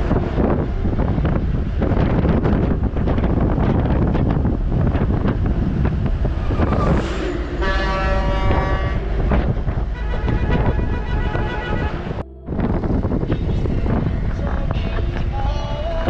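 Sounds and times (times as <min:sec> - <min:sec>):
wind buffeting microphone: 0:00.0 - 0:16.0
vehicle horn: 0:06.3 - 0:12.2.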